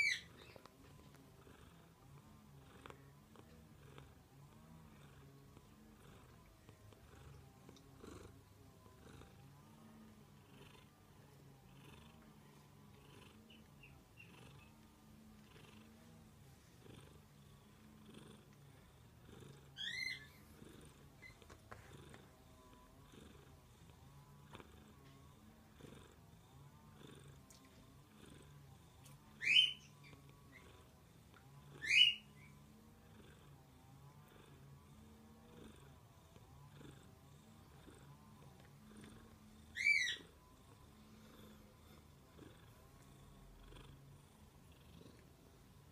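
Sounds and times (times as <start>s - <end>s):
cat chirping meows: 0.0s - 0.6s, 19.7s - 20.4s, 29.4s - 30.2s, 31.8s - 32.5s, 39.7s - 40.4s
cat purring: 0.0s - 45.9s.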